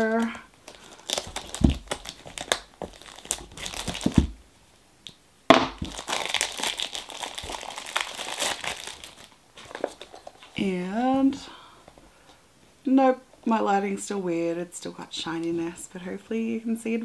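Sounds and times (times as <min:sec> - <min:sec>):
plastic wrap crinkling: 0:00.0 - 0:04.4, 0:05.5 - 0:10.6.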